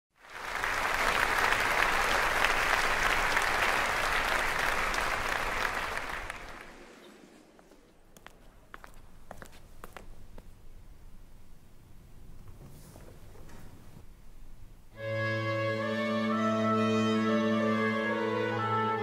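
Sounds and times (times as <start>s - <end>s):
audience applause: 0.1s - 7.2s
footstep clicks: 7.6s - 10.6s.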